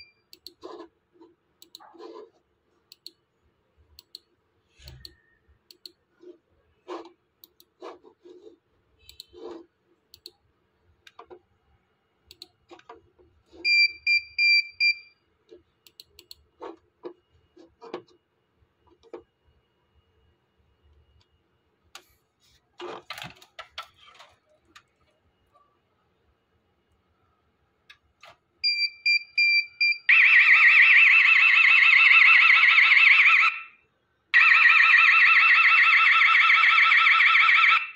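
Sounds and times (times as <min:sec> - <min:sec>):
computer mouse clicking: 0:00.3 - 0:00.9, 0:01.6 - 0:01.9, 0:02.9 - 0:03.2, 0:04.0 - 0:06.0, 0:06.9 - 0:08.1, 0:09.0 - 0:10.4, 0:12.3 - 0:13.0, 0:15.5 - 0:18.2.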